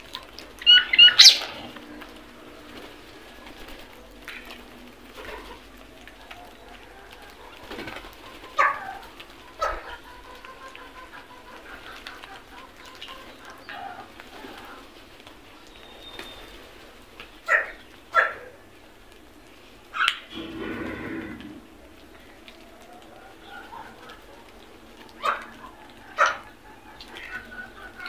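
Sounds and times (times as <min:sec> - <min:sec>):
other birds calling: 0:00.6 - 0:04.6, 0:19.9 - 0:28.0.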